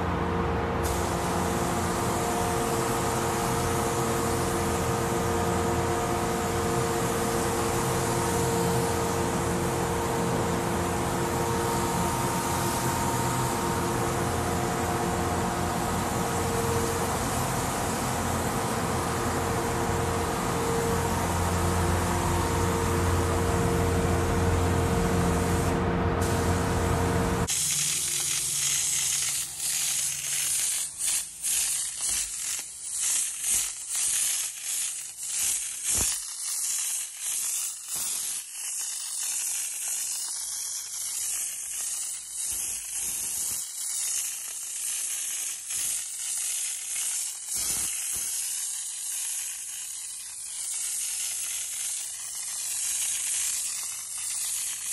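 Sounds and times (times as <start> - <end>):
ventilation hum: 0.0 - 31.6
spray gun hissing: 0.8 - 24.1, 24.8 - 54.9.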